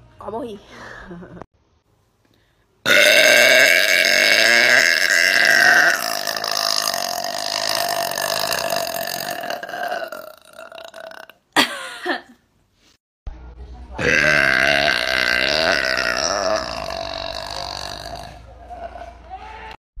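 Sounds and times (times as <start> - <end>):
woman burping: 2.9 - 12.3, 14.0 - 19.1.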